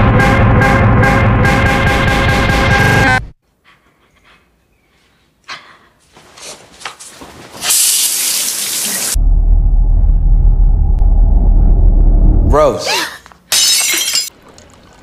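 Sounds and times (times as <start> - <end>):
water running from tap: 7.6 - 9.2
deep rumble: 9.2 - 12.6.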